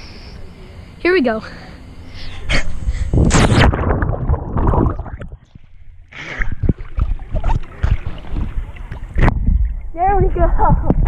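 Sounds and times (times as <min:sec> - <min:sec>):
underwater gurgling: 0:03.6 - 0:11.0
wind on microphone: 0:06.4 - 0:11.0.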